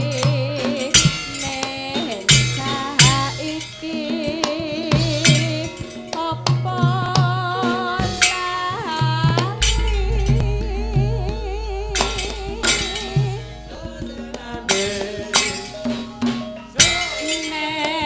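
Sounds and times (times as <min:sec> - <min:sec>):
woman singing: 0:00.0 - 0:18.0
gamelan ensemble music: 0:09.5 - 0:18.0
barrel drums struck sharply: 0:09.6 - 0:16.2.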